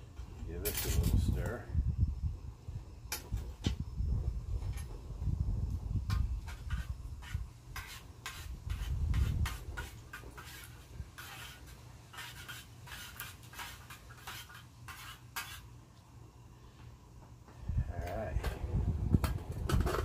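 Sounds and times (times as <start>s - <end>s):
spoon scraping metal cup: 6.4s - 15.6s.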